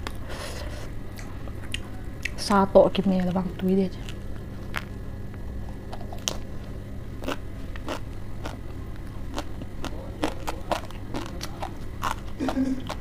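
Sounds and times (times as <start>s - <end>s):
chewing crisp lettuce: 5.7s - 6.5s, 7.2s - 13.0s.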